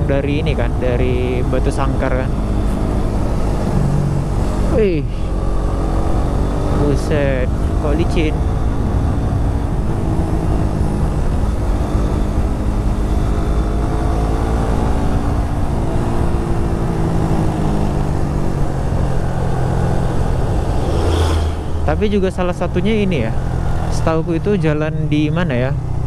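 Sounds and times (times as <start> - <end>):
motorcycle engine running: 0.0 - 26.0
wind noise rushing: 14.9 - 22.8.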